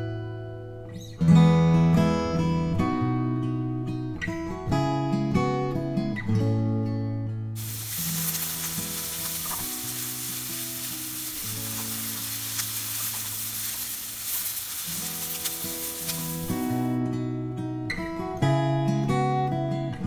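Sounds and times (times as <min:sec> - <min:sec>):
onion sizzling in a pan: 0:07.6 - 0:17.0.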